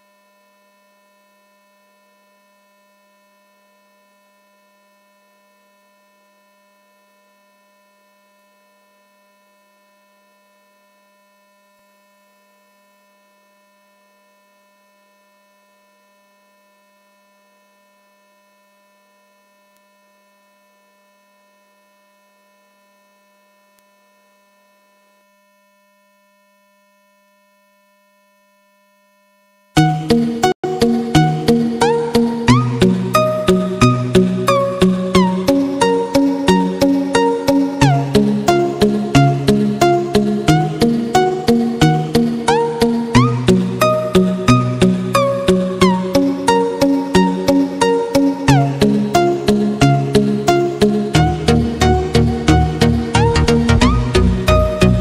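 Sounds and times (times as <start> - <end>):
thin high whine: 28.5 - 55.0.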